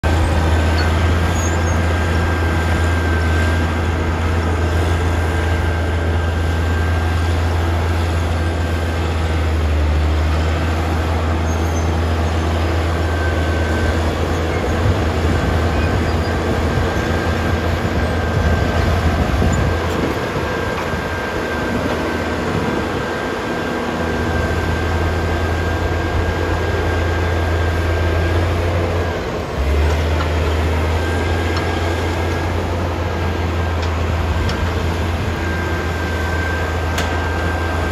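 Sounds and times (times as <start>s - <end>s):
diesel engines droning: 0.0s - 37.9s.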